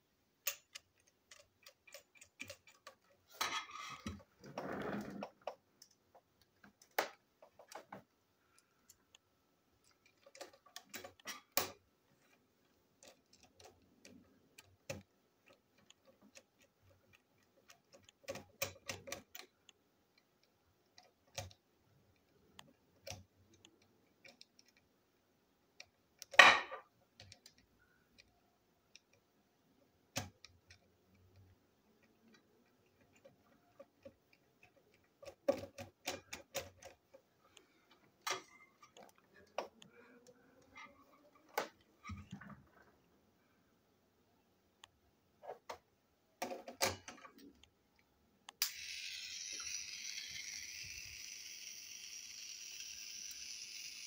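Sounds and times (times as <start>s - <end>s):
plastic toy parts clicking: 0.4s - 4.3s, 9.8s - 11.8s, 13.0s - 24.9s, 30.0s - 37.2s, 48.5s - 54.0s.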